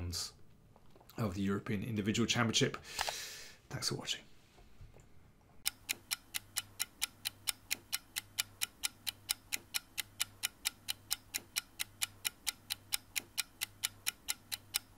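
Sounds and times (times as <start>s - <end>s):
steady ticking: 5.6s - 14.9s.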